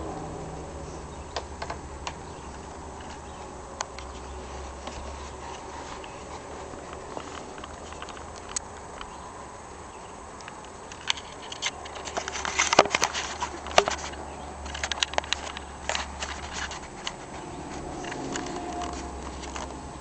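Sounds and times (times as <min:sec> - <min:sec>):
paws and claws scuffling: 0:03.0 - 0:08.4
sharp clicks: 0:06.9 - 0:09.2.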